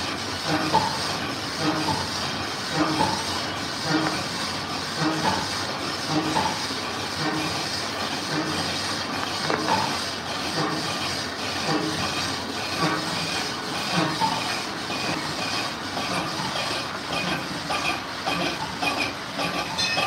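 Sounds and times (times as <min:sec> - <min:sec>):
lathe running with rattle: 0:00.0 - 0:20.0.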